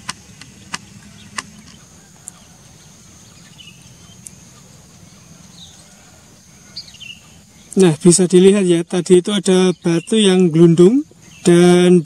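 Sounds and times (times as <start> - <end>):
sharp clicks: 0.0 - 2.4
bird chirp: 0.0 - 12.0
low background noise: 0.0 - 12.0.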